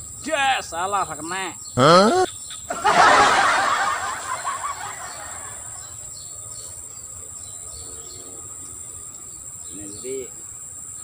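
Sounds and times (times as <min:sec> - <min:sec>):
crickets and insects trilling: 0:00.0 - 0:11.0.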